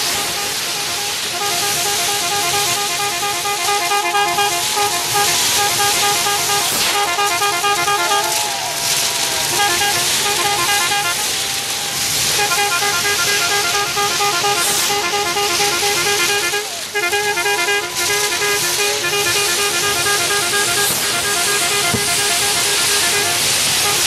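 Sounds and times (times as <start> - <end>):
rockets hissing: 0.0 - 24.0
gliding whistle: 3.5 - 13.0.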